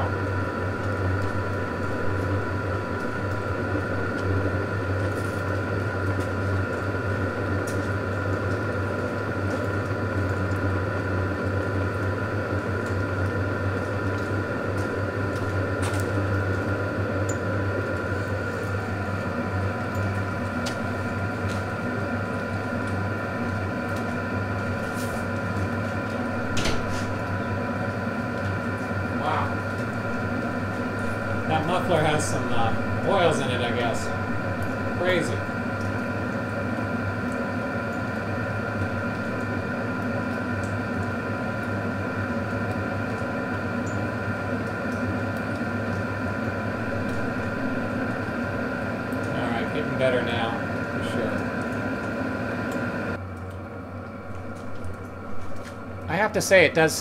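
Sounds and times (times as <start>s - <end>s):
heater droning: 0.0s - 57.0s
faint high whine: 28.8s - 36.9s.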